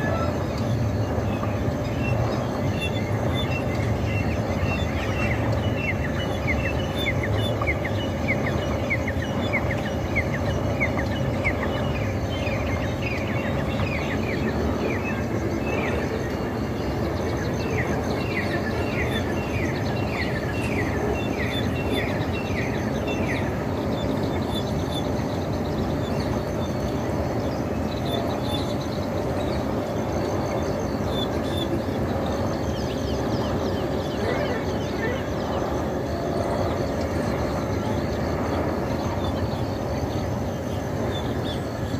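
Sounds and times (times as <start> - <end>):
steady background noise: 0.0 - 41.9
parakeets calling: 17.4 - 36.8.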